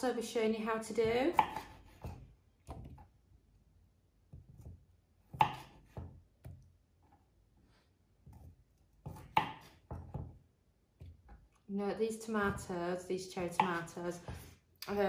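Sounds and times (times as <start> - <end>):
knife chopping on wooden board: 1.0 - 3.1, 4.3 - 6.7, 8.2 - 10.4, 13.4 - 14.5.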